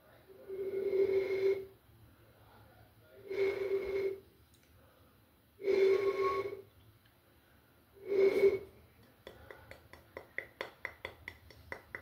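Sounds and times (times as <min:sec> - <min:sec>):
breathy nasal exhales: 0:00.4 - 0:01.7, 0:03.2 - 0:04.2, 0:05.6 - 0:06.6, 0:08.0 - 0:08.8.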